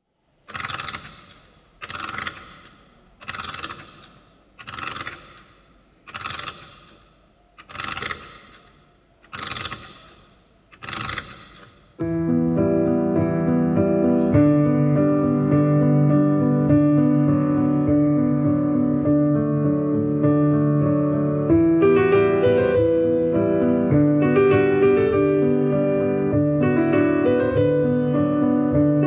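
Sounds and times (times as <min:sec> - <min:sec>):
mechanical ratcheting strokes: 0:00.4 - 0:12.0
piano music: 0:12.0 - 0:29.0.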